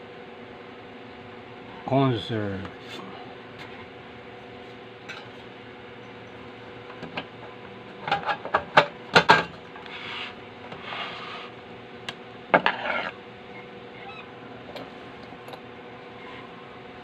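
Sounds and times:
metal cover scraping: 12.6 - 13.2.

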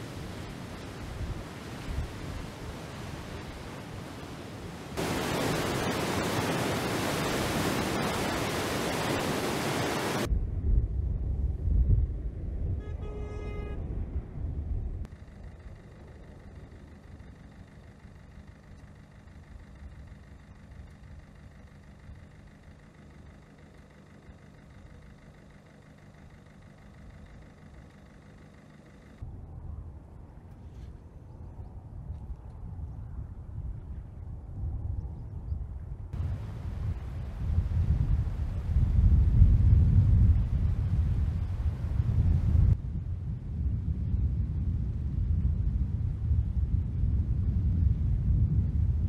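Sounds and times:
floodwater rushing through sluice: 0.0 - 10.3
steady water flow: 0.0 - 10.3
faint hum: 0.0 - 49.0
low rumble: 10.2 - 23.3, 29.2 - 49.0
short honk: 12.8 - 13.9.

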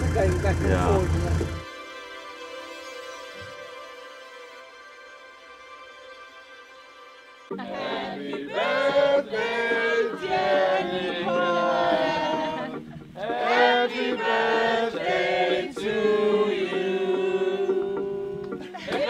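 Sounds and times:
group singing: 7.5 - 19.0.

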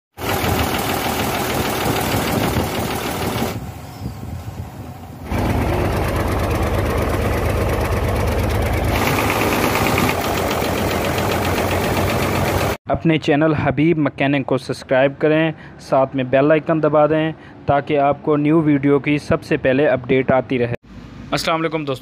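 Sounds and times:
truck diesel engine running: 0.2 - 3.7, 5.0 - 12.8.

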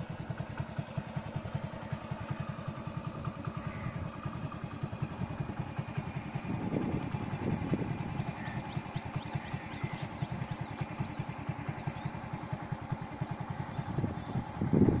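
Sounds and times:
engine throbbing: 0.0 - 15.0
faint bird chirps: 3.3 - 4.8, 8.0 - 14.7.

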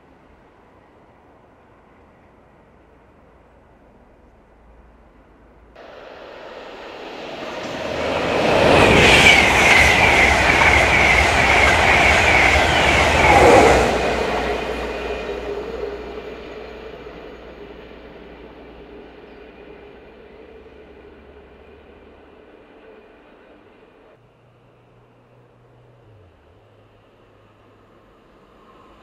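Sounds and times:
high steady ringing: 5.8 - 23.6
train wheels rushing on rail: 5.8 - 24.2.

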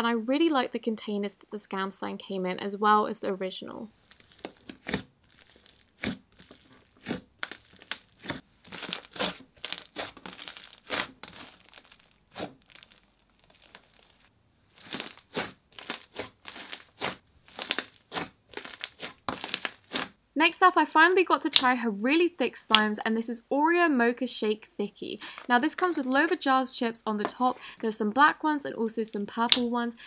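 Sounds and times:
slime crackling and popping: 4.0 - 20.2.

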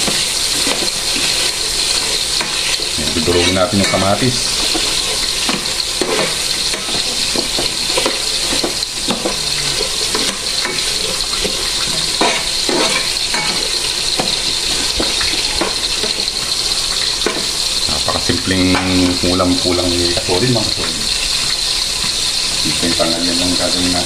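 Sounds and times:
spoon scraping pan: 0.0 - 17.7
vegetables sizzling in oil: 0.0 - 24.0.

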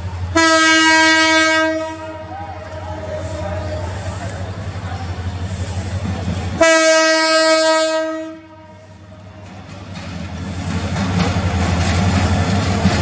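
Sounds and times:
locomotive engine rumble: 0.0 - 13.0
locomotive air horn: 0.3 - 3.8, 6.6 - 9.0.

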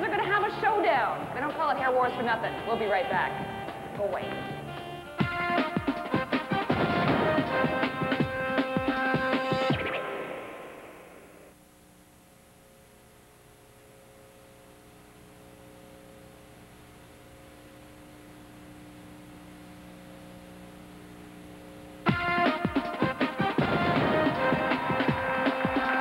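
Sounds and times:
steady electrical hum: 0.0 - 8.6, 10.2 - 24.4
bumper music: 0.2 - 11.3, 22.0 - 26.0.

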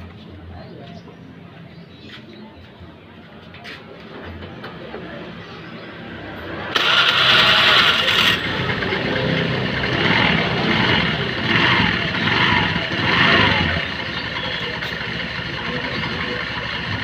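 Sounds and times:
scooter engine revving and idling: 6.5 - 17.0.

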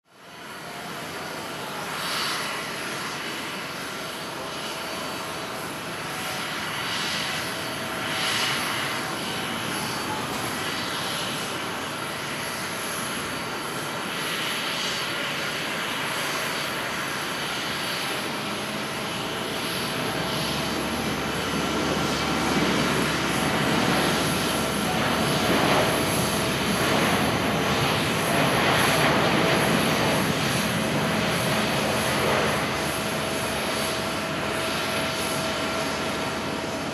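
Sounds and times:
jet engines at takeoff: 0.0 - 36.9.

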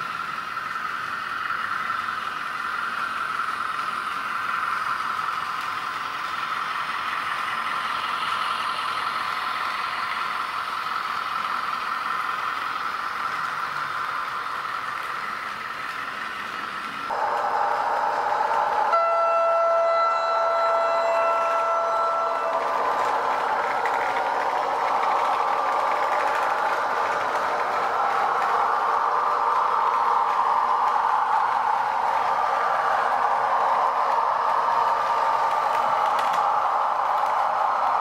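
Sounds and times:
model diesel locomotive running: 0.0 - 38.0
loud steady tone: 17.1 - 38.0
rattling clattering running noise: 22.5 - 38.0.

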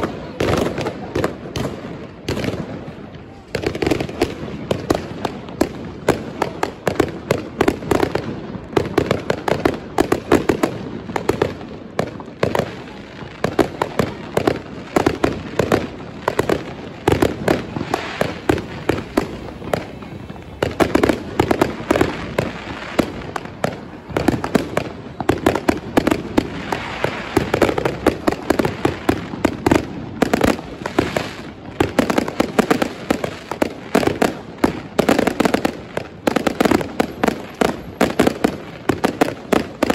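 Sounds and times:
firecrackers: 0.0 - 39.9
fireworks bangs and crackles: 0.0 - 39.9.

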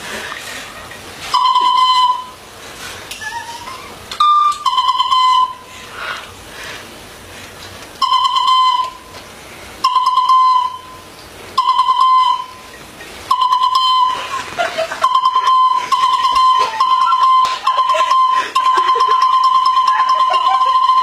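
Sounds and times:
toy trumpet toots: 4.2 - 5.6, 8.0 - 9.1.

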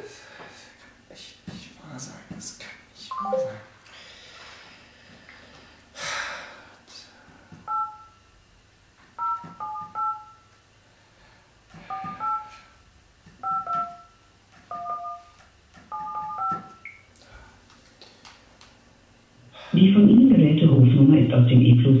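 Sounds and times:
telephone keypad beeps: 7.7 - 8.2, 9.2 - 10.5, 11.9 - 12.5, 13.4 - 17.1.

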